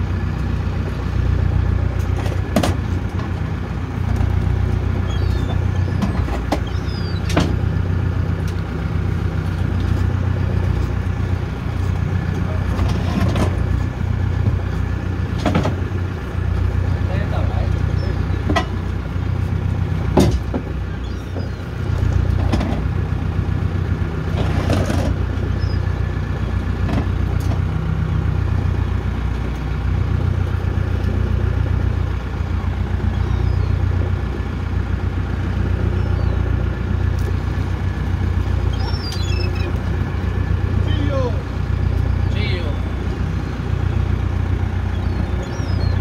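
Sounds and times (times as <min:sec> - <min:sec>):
boat engine humming: 0:00.0 - 0:46.0.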